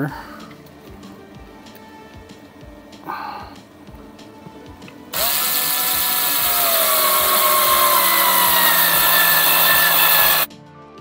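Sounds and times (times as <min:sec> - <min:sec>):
electric screwdriver motor whine: 0:05.2 - 0:10.5.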